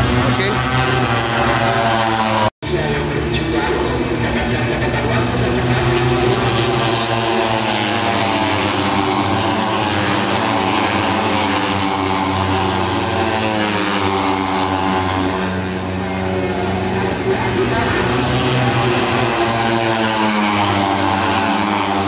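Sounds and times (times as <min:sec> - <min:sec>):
engine drone shifting pitch: 0:00.0 - 0:22.0.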